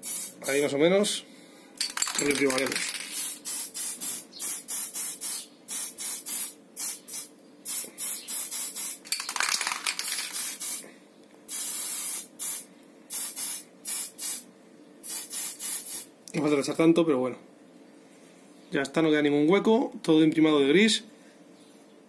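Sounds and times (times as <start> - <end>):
aerosol spray hissing: 0.0 - 0.5, 2.1 - 9.1, 10.0 - 10.8, 11.5 - 14.4, 15.0 - 16.1.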